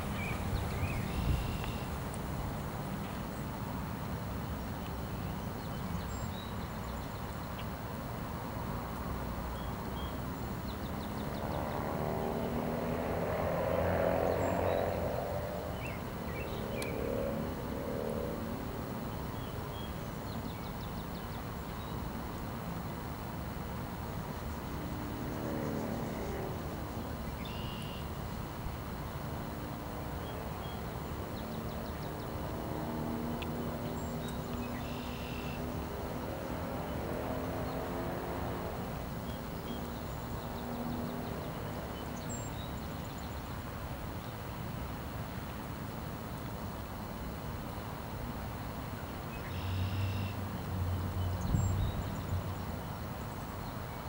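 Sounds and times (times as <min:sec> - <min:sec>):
road traffic passing: 0:00.0 - 0:06.2, 0:07.8 - 0:54.0
faint engine hum: 0:00.0 - 0:54.0
faint bird chirps: 0:34.0 - 0:35.6, 0:49.4 - 0:50.4.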